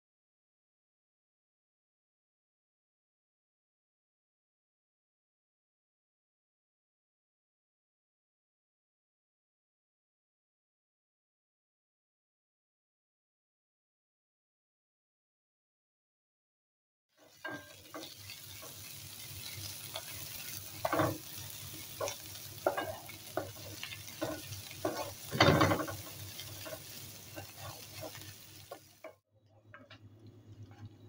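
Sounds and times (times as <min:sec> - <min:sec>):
vegetables sizzling in a frying pan: 0:17.2 - 0:29.2
wooden spatula scraping a pan: 0:17.2 - 0:30.0.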